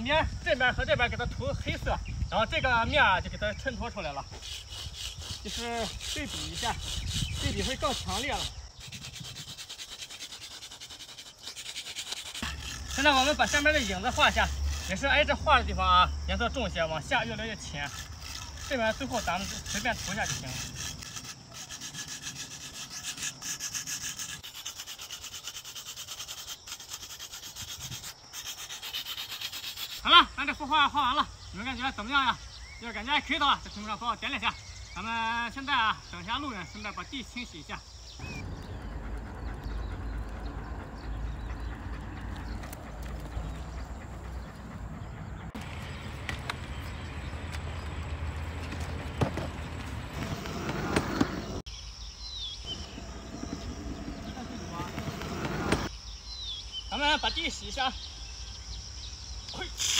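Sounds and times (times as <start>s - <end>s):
drawing stick scratching on concrete: 4.3s - 15.4s, 17.2s - 30.0s, 50.1s - 51.7s, 52.7s - 55.9s
car rolling on concrete road: 38.2s - 51.7s, 52.7s - 55.9s.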